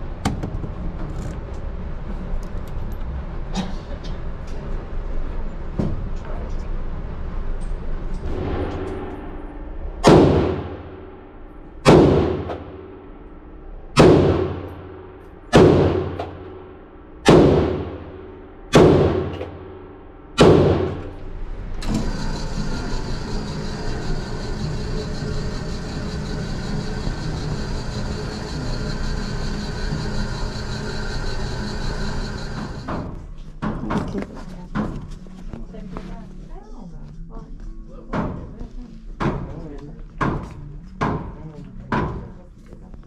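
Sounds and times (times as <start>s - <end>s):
rifle shots echoing: 15.5s - 16.4s, 20.4s - 21.1s.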